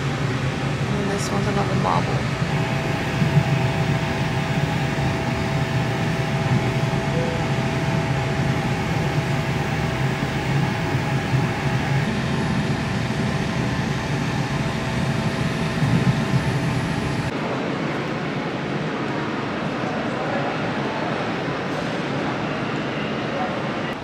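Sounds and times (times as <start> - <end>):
faint whining tones: 0.0 - 17.3
train rumble inside carriage: 0.0 - 24.0.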